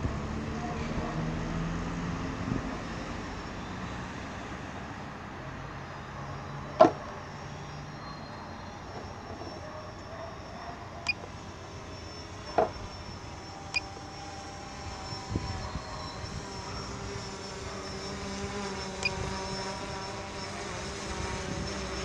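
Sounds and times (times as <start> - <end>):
motor humming: 8.8 - 22.0.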